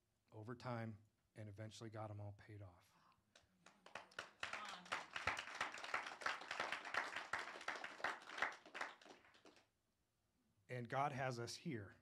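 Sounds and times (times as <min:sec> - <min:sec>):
audience applauding: 0:03.8 - 0:09.6.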